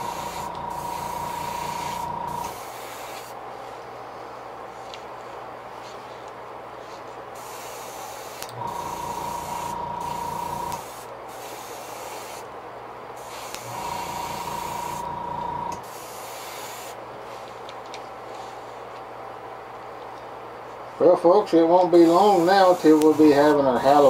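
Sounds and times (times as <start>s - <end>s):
small motor humming: 0.0s - 2.6s, 8.5s - 10.8s, 13.6s - 15.8s
airbrush spraying hisses: 0.0s - 3.8s, 6.8s - 12.5s, 13.2s - 15.1s, 15.8s - 17.4s, 21.9s - 24.0s.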